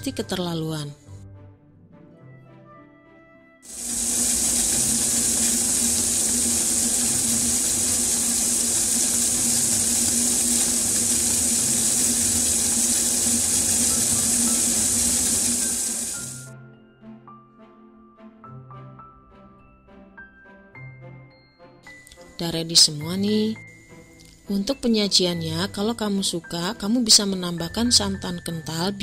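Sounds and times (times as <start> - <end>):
soft background music: 0.0 - 29.0
syrup boiling with sizzling hiss: 3.7 - 16.5.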